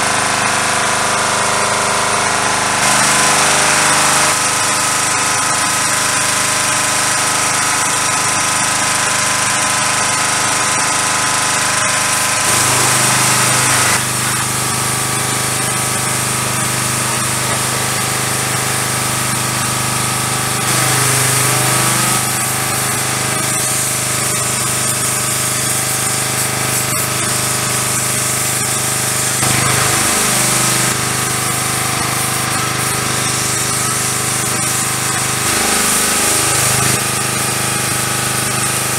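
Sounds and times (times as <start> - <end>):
pressure washer running: 0.0 - 38.9
water spray hissing: 20.6 - 38.0.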